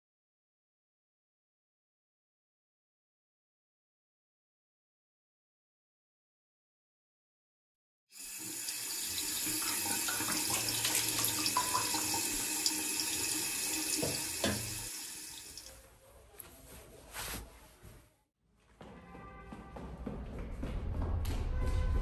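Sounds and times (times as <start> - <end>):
tap running into a sink: 8.4 - 15.7.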